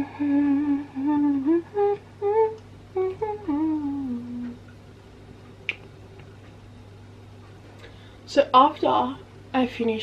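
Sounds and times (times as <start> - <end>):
woman humming a tune: 0.0 - 4.6.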